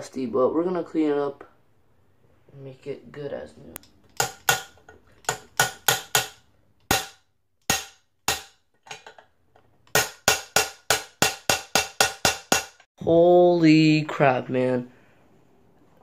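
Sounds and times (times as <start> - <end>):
hammering metal on metal: 4.2 - 8.6, 9.9 - 12.9.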